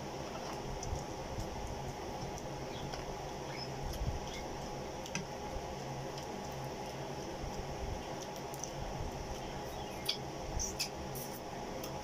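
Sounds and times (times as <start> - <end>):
shrimp being peeled and chewed: 0.2 - 12.0.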